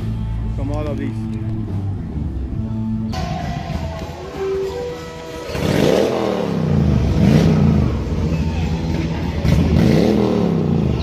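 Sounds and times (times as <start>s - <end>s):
motorcycle engine revving: 5.4s - 11.0s.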